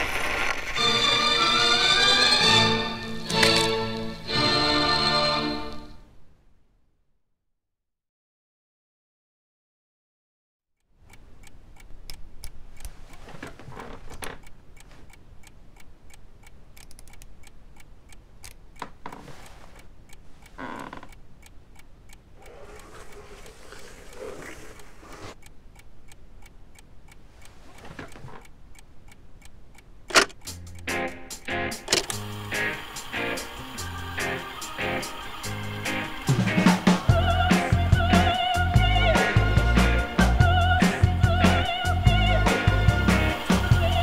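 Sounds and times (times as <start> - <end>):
wall clock ticking: 10.8 - 44.0
small rustles and shuffles: 12.7 - 15.2, 18.8 - 20.6, 27.2 - 28.5.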